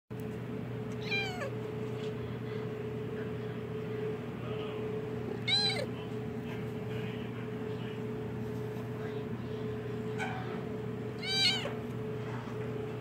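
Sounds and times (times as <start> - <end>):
steady low hum: 0.2 - 13.0
kitten crying: 1.0 - 1.6, 5.4 - 5.9, 11.2 - 11.8.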